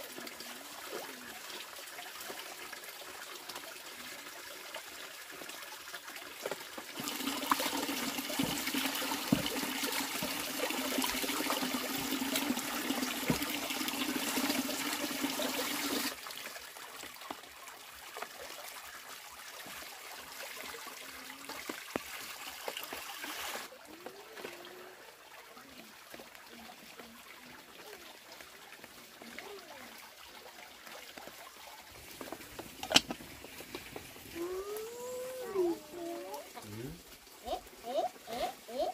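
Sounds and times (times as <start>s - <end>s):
hose water pouring into basin: 0.0s - 38.8s
pot knocking while washed: 7.1s - 10.5s.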